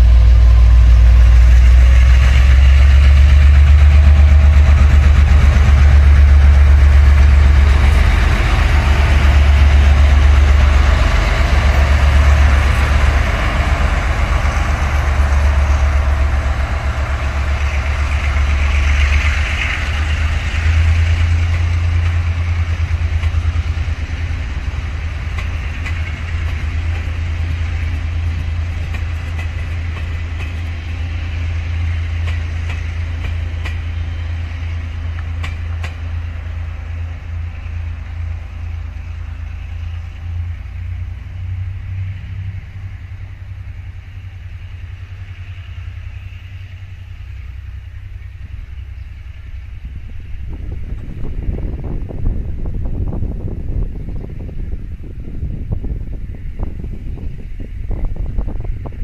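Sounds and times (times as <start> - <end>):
train rolling on rails: 0.0 - 59.0
wheels clicking over rail joints: 4.6 - 34.1, 34.8 - 37.0.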